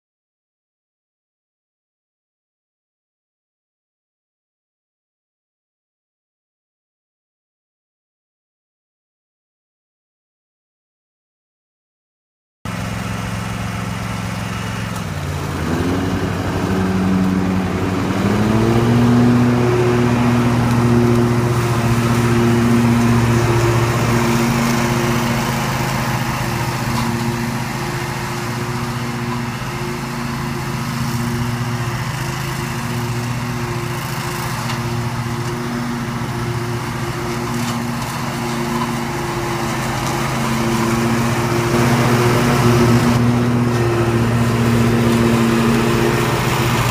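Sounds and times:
ride-on mower engine running: 0:12.7 - 0:46.9.

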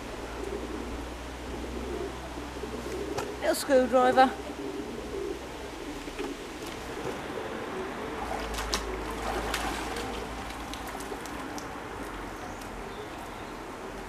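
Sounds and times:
water splashing and dripping: 0:08.2 - 0:13.3.

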